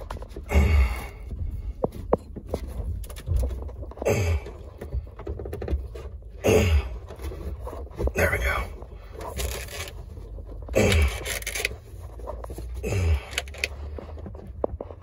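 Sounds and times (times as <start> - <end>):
cable scraping on carpet: 7.0 - 15.0.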